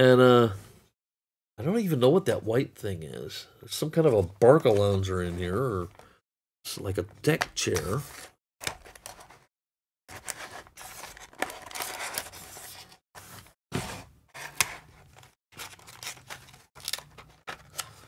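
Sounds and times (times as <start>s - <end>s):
plastic packaging crinkling and scraping: 10.1s - 18.0s.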